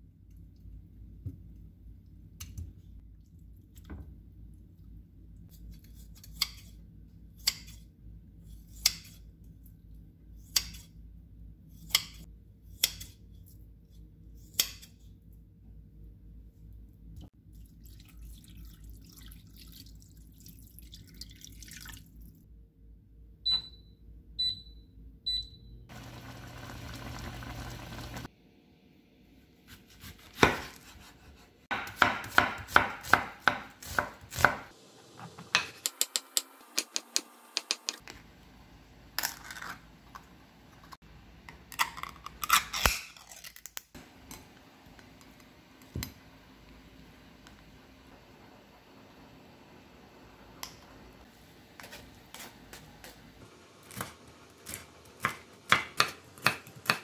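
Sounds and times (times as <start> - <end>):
knife chopping on wooden board: 29.7 - 34.7, 53.9 - 57.0.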